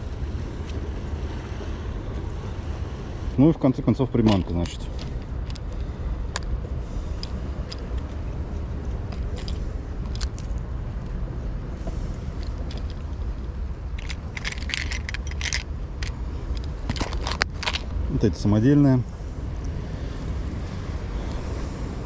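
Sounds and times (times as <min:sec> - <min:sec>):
fishing lures rattling in plastic box: 0:14.0 - 0:16.2, 0:16.9 - 0:17.9.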